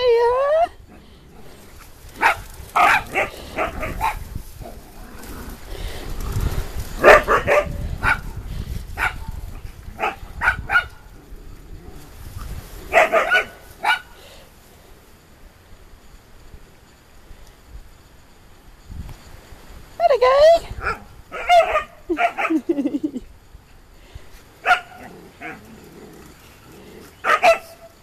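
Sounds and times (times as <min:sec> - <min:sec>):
dogs barking and yipping: 0:00.0 - 0:11.2, 0:12.8 - 0:14.3, 0:20.2 - 0:23.2, 0:24.6 - 0:28.0.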